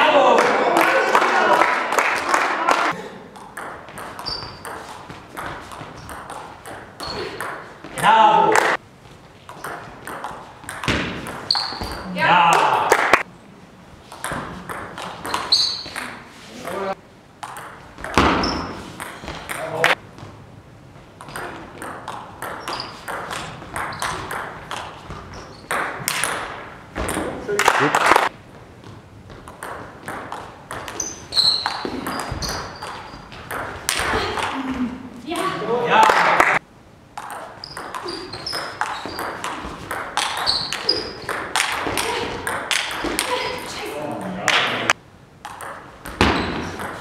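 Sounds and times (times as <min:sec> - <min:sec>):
shoe squeaks: 0:04.0 - 0:05.1, 0:07.0 - 0:07.4, 0:11.3 - 0:12.2, 0:15.0 - 0:16.6, 0:18.3 - 0:19.4, 0:22.4 - 0:24.3, 0:25.1 - 0:25.8, 0:30.8 - 0:33.4, 0:37.4 - 0:41.4, 0:46.2 - 0:46.9
table tennis ball clicking: 0:45.4 - 0:46.2.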